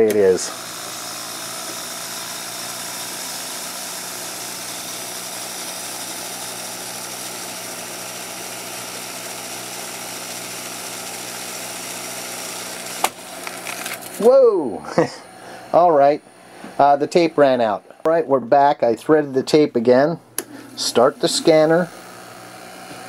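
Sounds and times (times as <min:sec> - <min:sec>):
sharp click of tape running out: 0:00.0 - 0:00.4, 0:01.6 - 0:02.0, 0:12.8 - 0:14.3, 0:20.4 - 0:23.0
tape recorder rewinding whir: 0:00.0 - 0:17.8, 0:20.4 - 0:23.0
tape transport hum tones: 0:12.9 - 0:23.0.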